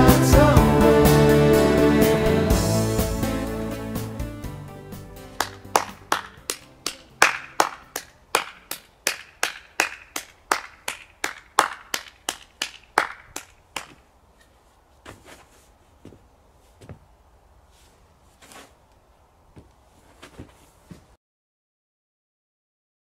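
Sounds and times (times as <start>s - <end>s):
person clapping slowly: 5.4s - 14.0s.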